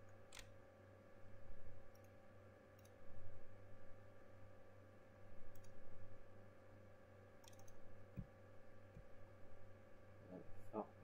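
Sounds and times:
low electrical hum: 0:00.0 - 0:11.0
computer mouse clicking: 0:01.9 - 0:03.0, 0:05.5 - 0:05.8, 0:07.4 - 0:07.8.

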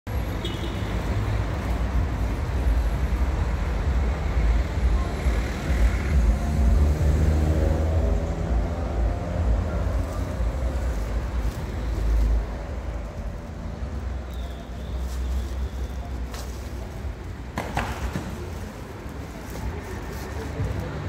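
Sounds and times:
background noise: 0:00.1 - 0:21.0
vehicle engine rumbling: 0:00.1 - 0:21.0.

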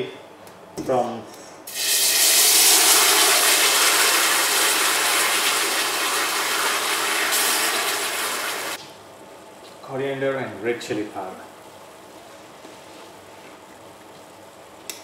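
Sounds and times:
spice paste sizzling in hot oil: 0:01.7 - 0:08.8.

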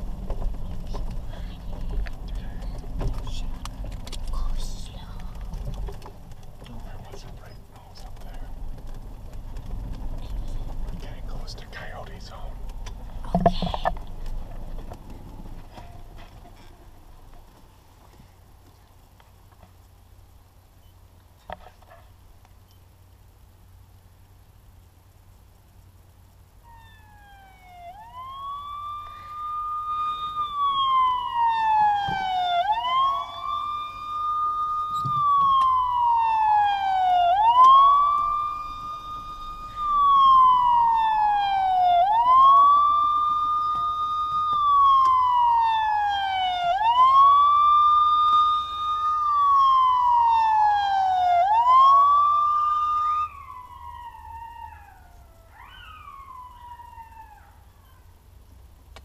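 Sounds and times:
police siren wail from phone speaker: 0:26.6 - 0:57.6
coyotes howling: 0:26.6 - 0:58.2.

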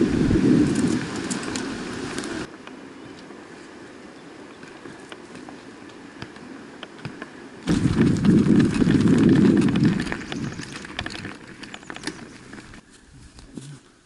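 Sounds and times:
bike rolling over rough trail: 0:00.0 - 0:02.5, 0:06.2 - 0:12.9
footsteps and bike part clicks: 0:04.5 - 0:13.7.

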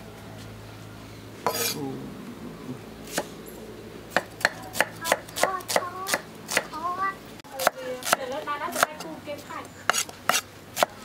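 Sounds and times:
cleaver chopping on wooden block: 0:04.1 - 0:06.7, 0:07.6 - 0:09.0, 0:09.9 - 0:11.0.

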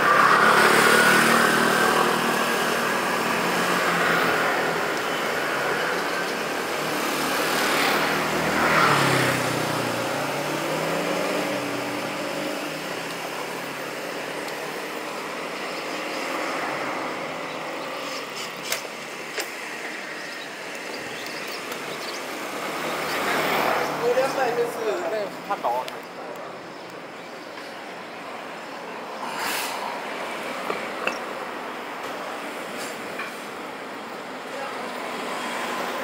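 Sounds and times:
engine passing close: 0:00.0 - 0:18.4
motor scooters and cars passing: 0:00.0 - 0:36.0
road noise rush: 0:00.0 - 0:36.0.

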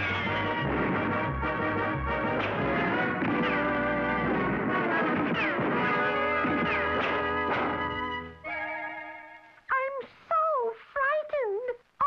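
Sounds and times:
high-pitched cartoon woman's voice: 0:09.7 - 0:12.0.

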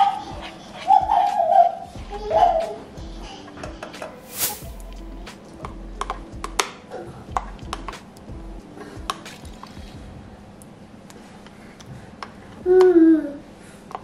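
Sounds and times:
short whoosh: 0:04.3 - 0:04.8.

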